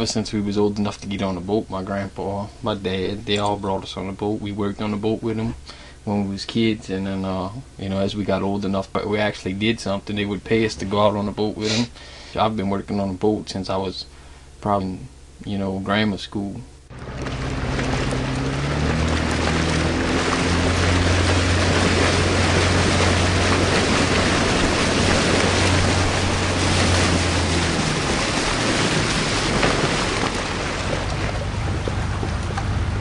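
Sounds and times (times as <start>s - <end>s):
water noise: 0.0s - 11.9s, 16.9s - 33.0s
boat engine running: 0.0s - 12.7s, 16.8s - 33.0s
rushing wind: 16.9s - 33.0s.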